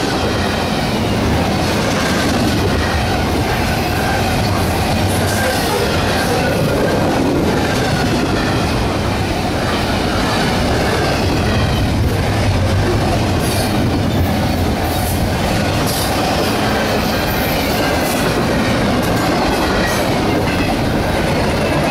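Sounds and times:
sharp clicks of train wheels: 0.0 - 21.9
train wheels rumbling on rails: 0.0 - 21.9.

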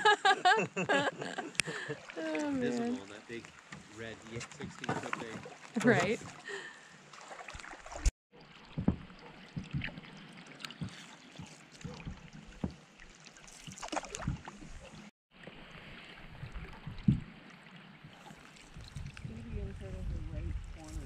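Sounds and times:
rain on a lake: 1.5 - 14.9
water knocking against canoe hull: 3.4 - 6.4, 7.2 - 10.1, 10.7 - 12.8, 13.7 - 14.7, 16.4 - 17.3.

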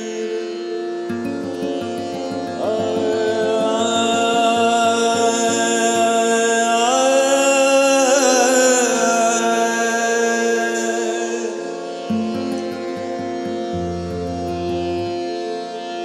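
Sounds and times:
man singing wordless notes: 0.0 - 15.1
low plucked notes: 1.1 - 6.8, 12.1 - 15.4
steady drone: 1.1 - 7.0, 12.1 - 15.6.

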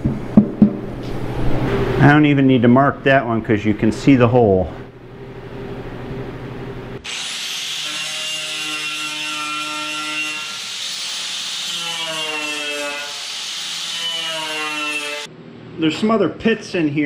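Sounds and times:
rotary sander grinding metal: 7.0 - 15.3.

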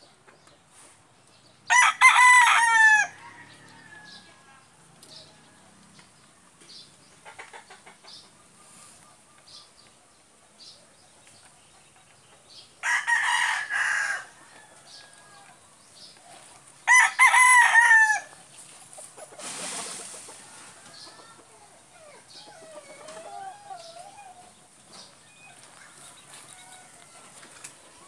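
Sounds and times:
rooster crowing: 1.7 - 4.6, 12.8 - 15.5, 16.8 - 18.3, 25.3 - 27.5.

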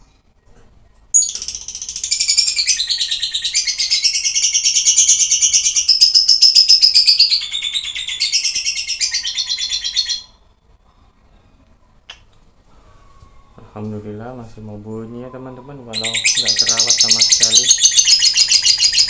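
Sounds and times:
lovebird chattering song: 1.2 - 10.4, 15.9 - 19.0.

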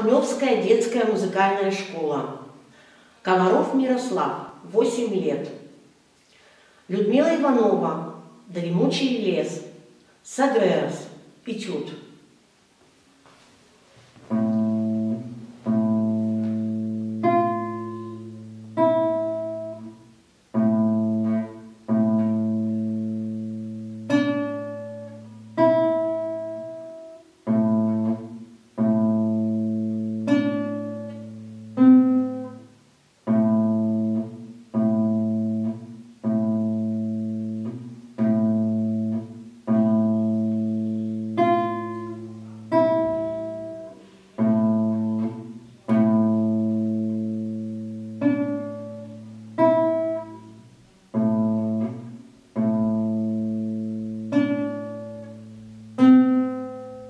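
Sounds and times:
classical guitar chords: 0.0 - 57.0.

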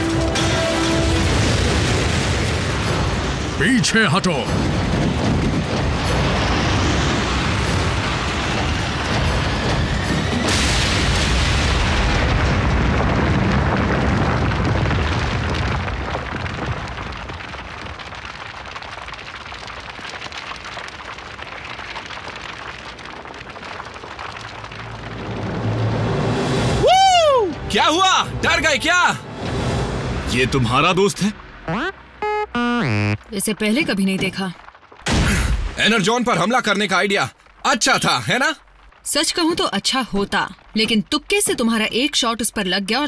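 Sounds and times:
loud explosion blast: 0.0 - 17.2, 34.6 - 36.1
crackle of burning flames: 0.0 - 43.0
long rumble: 24.5 - 27.7.

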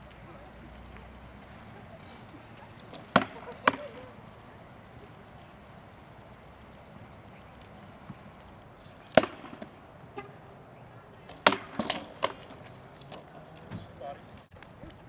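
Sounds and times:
rattan swords striking shields: 3.0 - 4.0, 9.1 - 9.8, 11.3 - 12.6.

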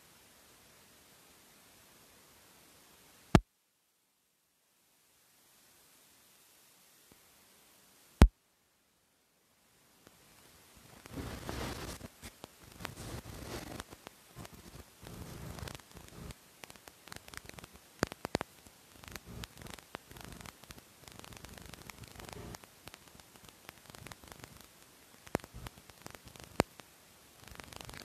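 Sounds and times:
crackling static: 0.0 - 28.0
sharp pops and clicks: 11.0 - 28.0.

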